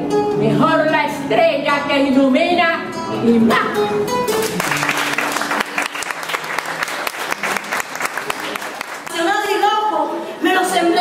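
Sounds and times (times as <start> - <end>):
acoustic guitar: 0.0 - 11.0
audience clapping: 4.3 - 9.6.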